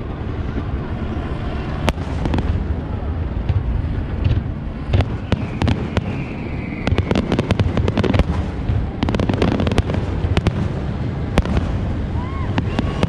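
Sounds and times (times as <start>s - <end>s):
fireworks bangs and crackles: 0.2s - 13.0s
falling firework whistle: 5.0s - 8.3s, 11.5s - 13.0s.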